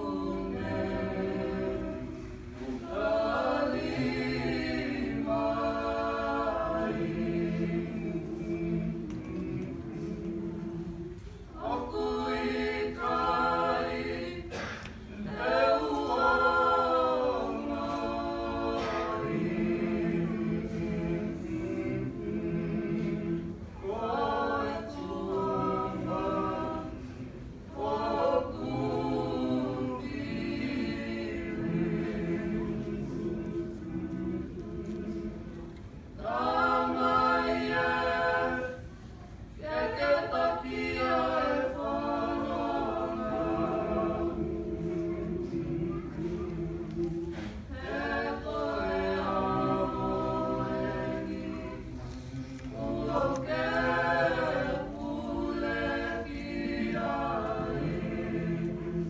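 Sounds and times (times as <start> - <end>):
group singing unaccompanied: 0.0 - 59.0.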